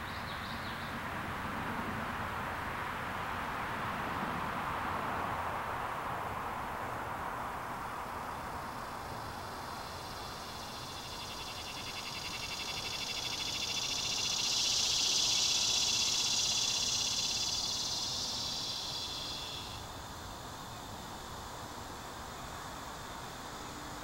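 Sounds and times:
steady background hiss: 0.0s - 24.0s
high pulsing insect trill: 8.2s - 24.0s.

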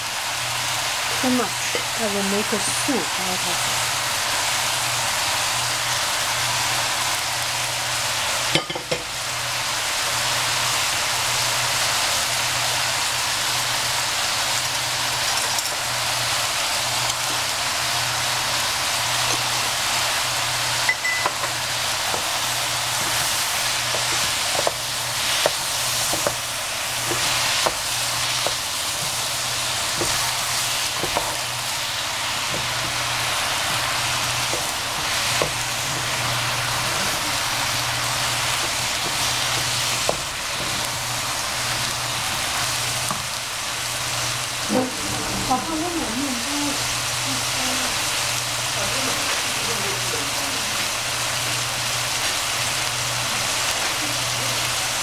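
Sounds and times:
food sizzling in a frying pan: 0.0s - 55.0s
low hum: 44.6s - 46.8s.

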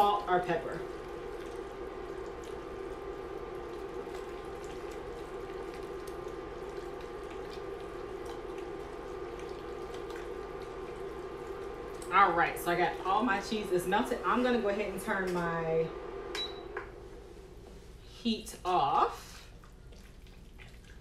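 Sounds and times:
induction cooktop hum: 0.0s - 21.0s
spoon stirring thick food: 0.9s - 12.1s.

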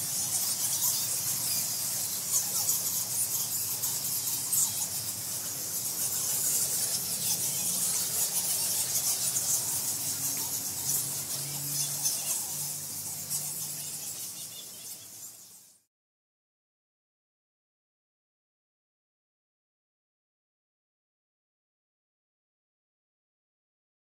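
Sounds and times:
bats squeaking: 0.0s - 15.9s.

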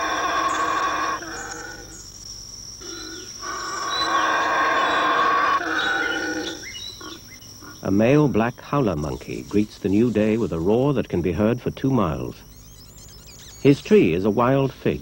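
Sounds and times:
howler monkey roaring: 0.0s - 2.1s, 2.8s - 7.8s
high-pitched insect drone: 0.0s - 15.0s.

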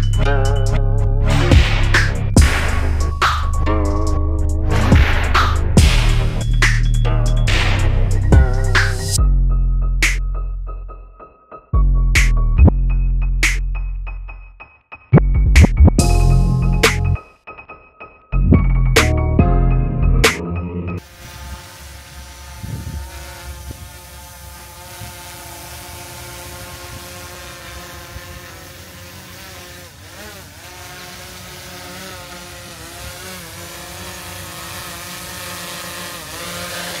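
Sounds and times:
drone propellers whining: 20.3s - 37.0s.

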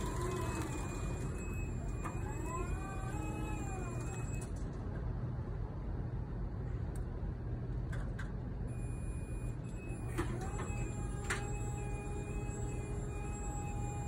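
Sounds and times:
hydraulic pump motor whine: 0.0s - 4.6s, 8.7s - 14.0s
steady low hum: 0.0s - 14.0s.

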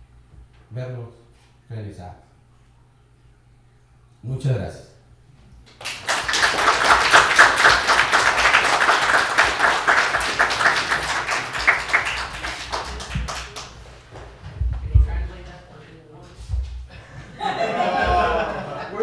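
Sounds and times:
audience applauding: 5.7s - 14.0s.

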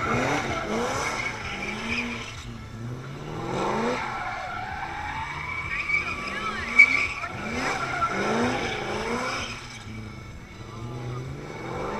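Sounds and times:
tyres squealing: 0.0s - 2.7s, 3.8s - 10.4s
car engine revving hard: 0.0s - 11.9s.

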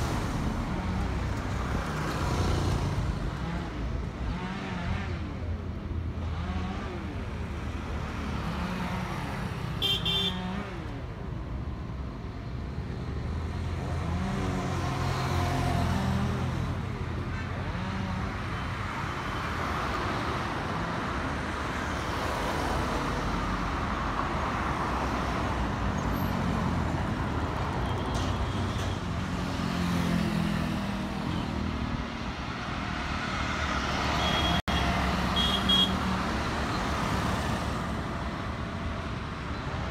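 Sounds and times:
road traffic passing: 0.0s - 39.9s
vehicle horn toot: 34.2s - 36.0s.

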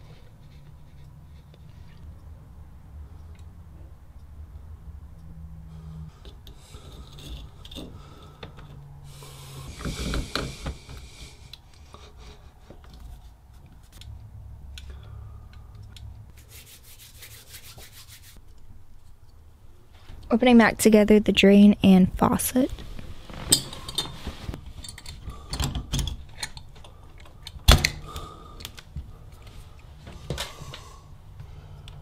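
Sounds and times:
hands rubbing metal parts: 16.0s - 18.4s.

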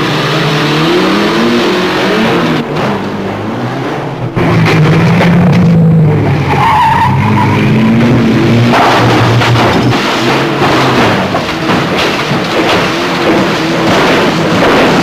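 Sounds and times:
car engine revving: 0.0s - 15.0s
car bouncing over stone steps: 8.6s - 15.0s.

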